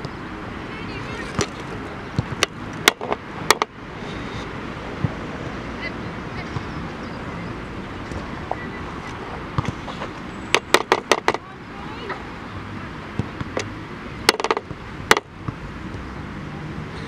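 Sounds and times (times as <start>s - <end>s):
faint voices: 0.5s - 2.4s, 11.1s - 12.6s.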